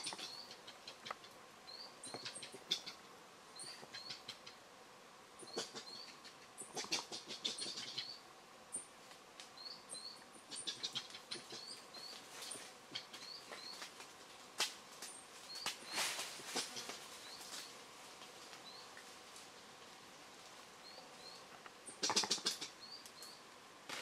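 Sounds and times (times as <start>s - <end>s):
coatis chirping: 0.0s - 4.6s, 5.4s - 8.9s, 9.6s - 13.9s, 20.8s - 23.4s
branches rustling: 11.0s - 21.8s.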